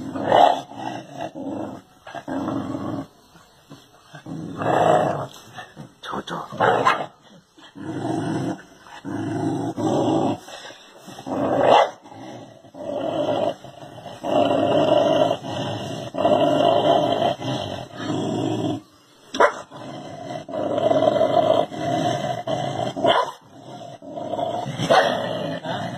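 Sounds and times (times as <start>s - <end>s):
dog growling: 0.0s - 18.8s, 19.4s - 25.9s
dog barking: 23.1s - 23.4s.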